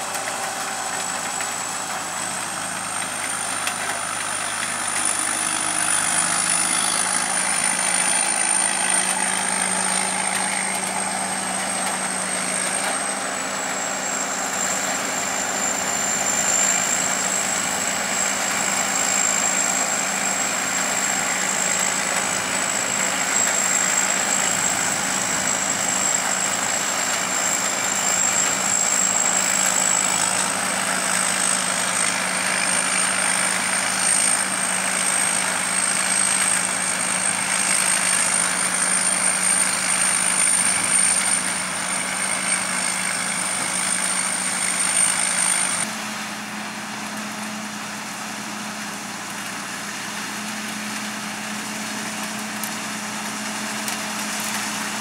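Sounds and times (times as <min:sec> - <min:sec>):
combine harvester engine drone: 0:00.0 - 0:55.0
thin high machine whine: 0:00.0 - 0:55.0.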